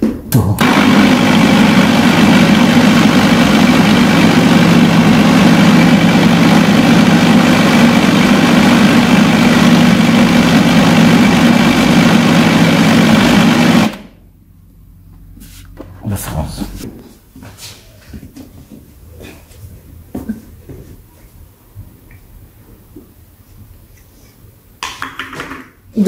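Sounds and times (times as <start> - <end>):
blender motor grinding: 0.6 - 14.1.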